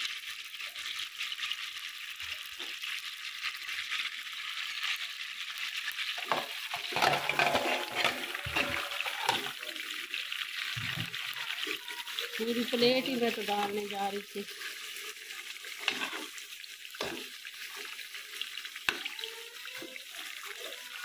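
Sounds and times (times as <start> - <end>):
oil sizzling in a pot: 0.0 - 21.0
stirring: 6.2 - 21.0.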